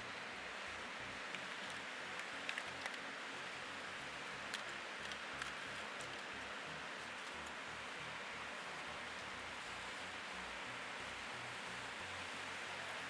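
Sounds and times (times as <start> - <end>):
small clicks: 1.3 - 3.1.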